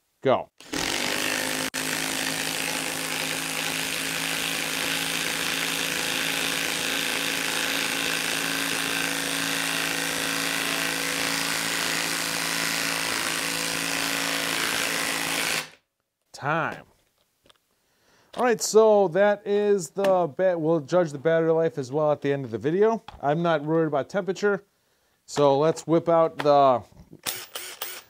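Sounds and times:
impact wrench hammering screw into wood: 0:00.6 - 0:15.8, 0:27.2 - 0:28.0.

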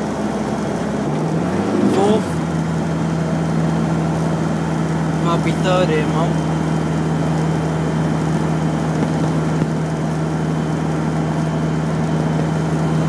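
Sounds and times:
car engine and road drone: 0:00.0 - 0:13.0.

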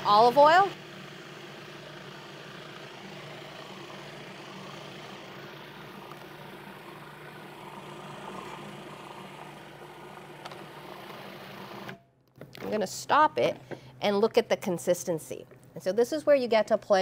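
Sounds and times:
food processor running: 0:00.0 - 0:12.0.

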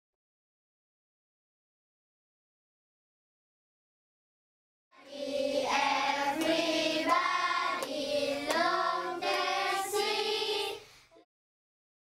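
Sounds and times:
children singing together: 0:05.0 - 0:10.9.

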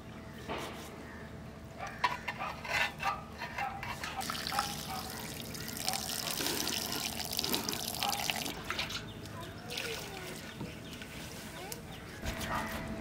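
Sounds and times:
water pouring and splashing: 0:04.2 - 0:10.7.

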